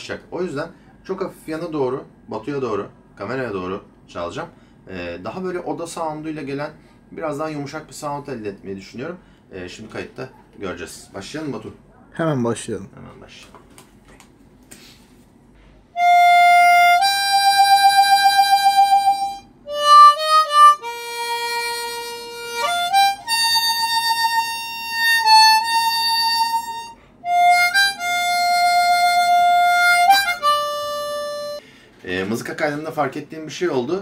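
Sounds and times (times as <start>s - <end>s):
blues harmonica solo: 16.0s - 31.6s.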